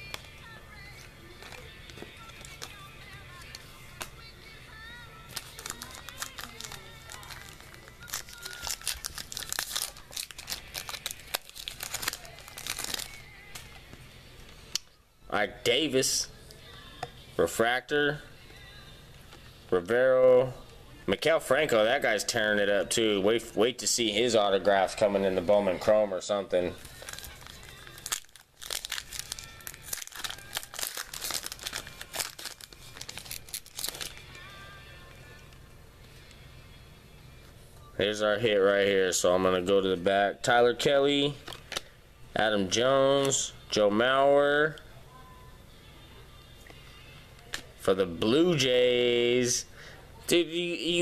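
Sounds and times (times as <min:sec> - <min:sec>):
foil wrapper tearing and crinkling: 0:05.3 - 0:13.6, 0:26.8 - 0:34.2.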